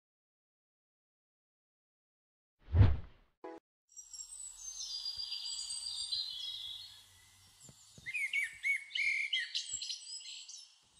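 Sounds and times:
birds chirping and trilling: 4.0s - 10.9s.

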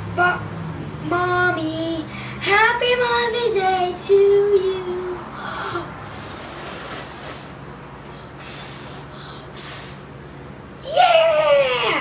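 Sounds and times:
high-voiced exclamation: 10.8s - 12.0s.

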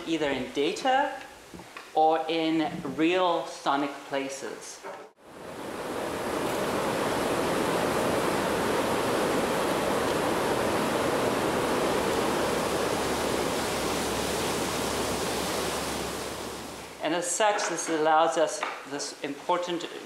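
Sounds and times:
water rushing through dam outflow: 5.2s - 17.0s.

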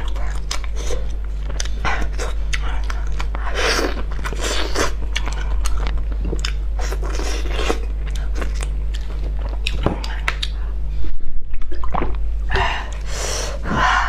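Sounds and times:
steady low hum: 0.0s - 14.0s
chewing with wet mouth clicks: 4.0s - 10.6s.

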